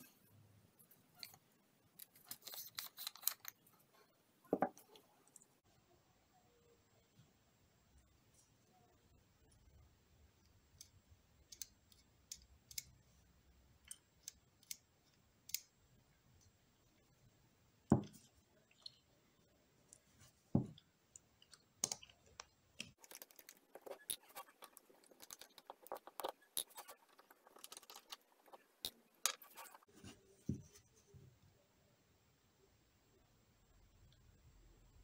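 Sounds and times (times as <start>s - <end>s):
screwdriver clicking and scraping: 2.0s - 3.7s, 23.0s - 29.9s.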